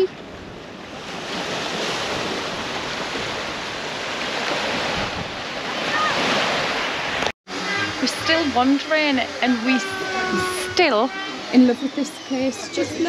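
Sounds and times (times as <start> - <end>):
sea waves washing onto shore: 0.0 - 7.3.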